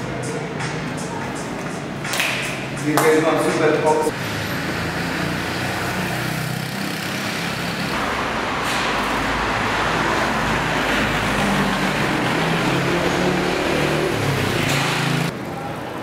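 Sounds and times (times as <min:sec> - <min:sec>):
passing cars: 0:02.8 - 0:15.5.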